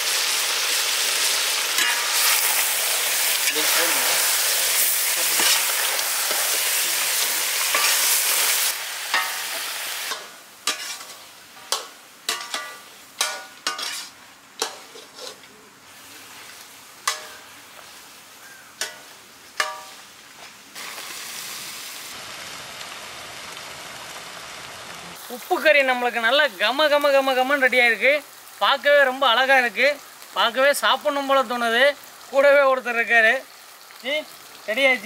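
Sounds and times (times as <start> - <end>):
curry sizzling in pan: 0.0 - 35.0
metal ladle knocking on pan: 11.7 - 13.9, 19.6 - 20.0.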